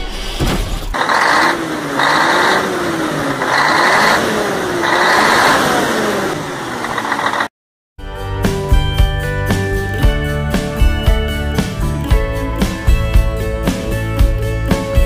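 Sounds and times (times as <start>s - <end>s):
engine revving with whine: 0.9s - 7.5s
music: 8.0s - 15.0s.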